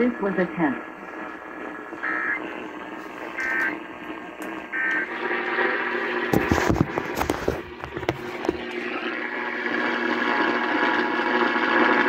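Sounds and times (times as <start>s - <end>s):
warbling data tones: 0.0s - 6.3s
radio hiss: 0.0s - 12.0s.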